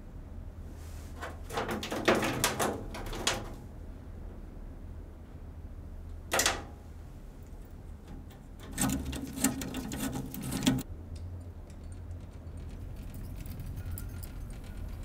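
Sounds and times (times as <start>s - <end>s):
rapid mechanical clicking and rattling: 7.5s - 15.0s.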